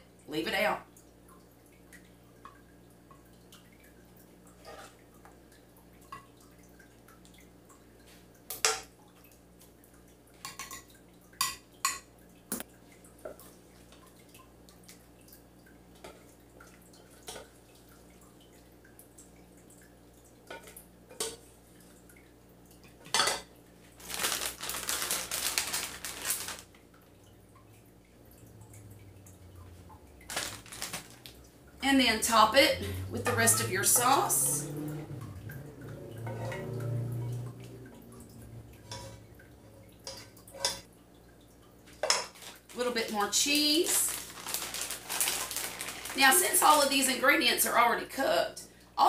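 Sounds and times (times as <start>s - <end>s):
plastic bag crinkling: 24.0s - 26.7s, 30.2s - 31.4s, 42.2s - 47.2s.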